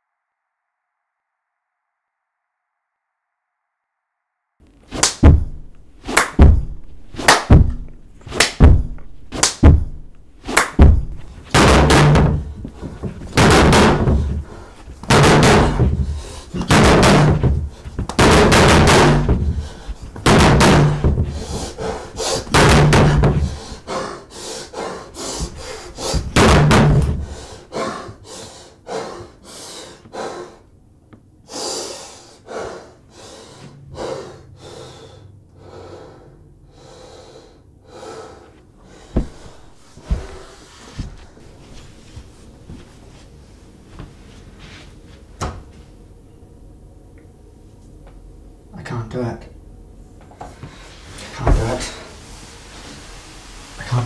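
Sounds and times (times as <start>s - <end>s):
fist pounding on door: 5.2s - 5.7s, 6.3s - 8.0s, 8.6s - 10.1s, 10.7s - 23.8s, 25.4s - 27.4s, 39.2s - 40.5s
hard breathing: 12.2s - 16.7s, 17.4s - 18.1s, 19.2s - 30.7s, 31.4s - 42.3s.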